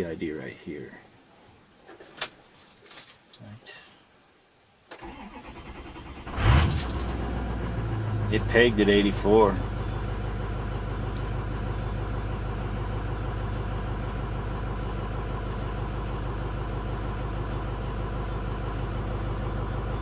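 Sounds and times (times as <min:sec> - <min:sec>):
diesel engine idling: 0:05.1 - 0:20.0.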